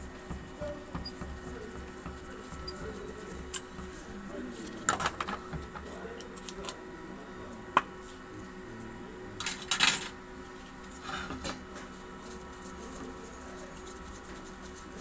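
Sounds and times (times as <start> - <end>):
metal parts clinking on steel trays: 9.4 - 10.2.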